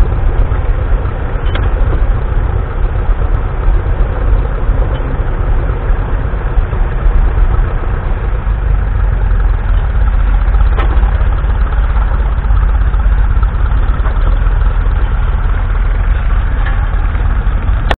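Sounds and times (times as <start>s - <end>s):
tractor engine running: 0.0s - 18.0s.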